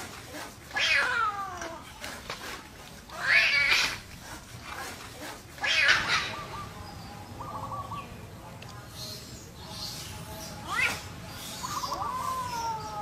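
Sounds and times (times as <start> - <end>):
kitten yowling: 0.7 - 1.6, 11.9 - 13.0.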